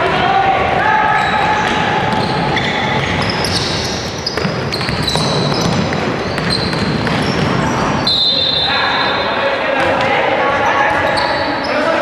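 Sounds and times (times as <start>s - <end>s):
hubbub of voices: 0.0s - 4.2s, 7.4s - 12.0s
sneakers squeaking on floor: 0.9s - 12.0s
basketball bouncing on hardwood: 4.2s - 7.8s.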